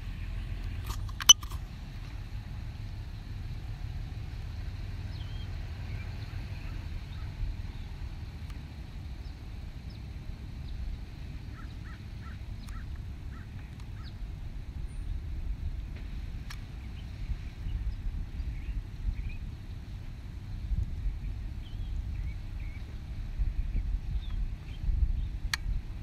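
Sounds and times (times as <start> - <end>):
low outdoor rumble: 0.0 - 26.0
sharp click: 0.8 - 1.6.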